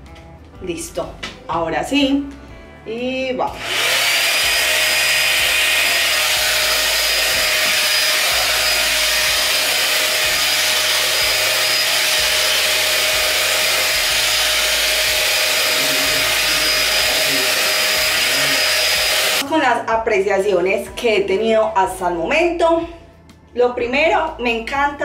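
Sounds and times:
hot air styler blowing: 0:03.5 - 0:19.4.

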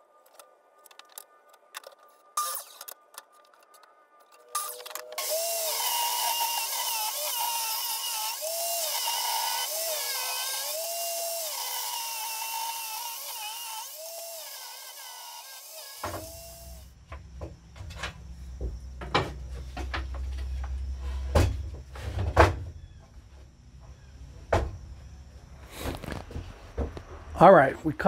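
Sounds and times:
table saw whining: 0:04.5 - 0:16.9.

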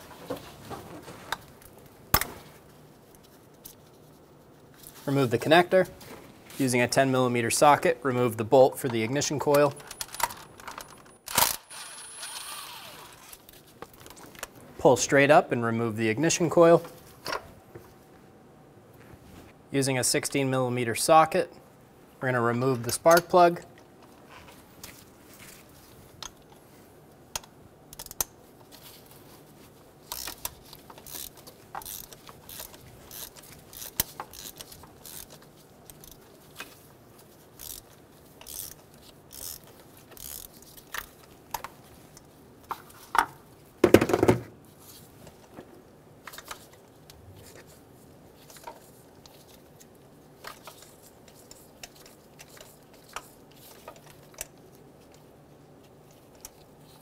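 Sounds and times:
hand ratchet clicking: 0:30.1 - 0:36.2, 0:37.6 - 0:41.1.

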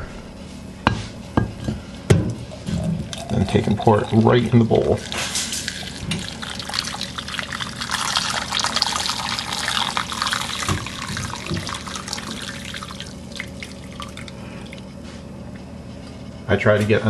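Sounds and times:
hot water pouring into glass dish: 0:02.6 - 0:14.8.

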